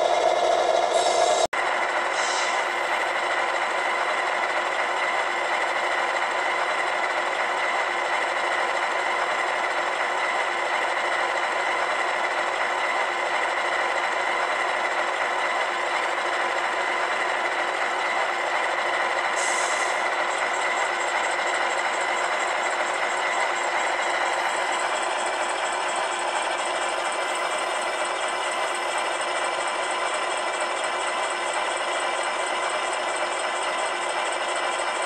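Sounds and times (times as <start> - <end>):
model locomotive diesel idle: 0.0 - 35.0.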